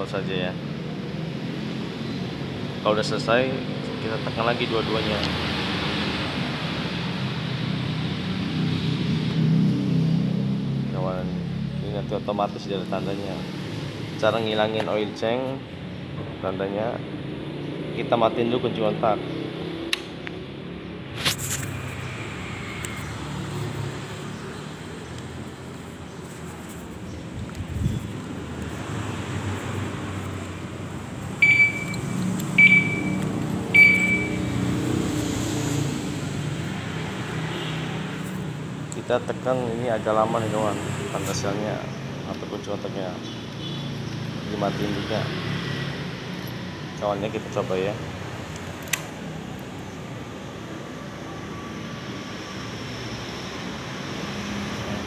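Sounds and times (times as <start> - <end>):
short high electronic beeps: 31.4 - 33.2, 33.8 - 34.6.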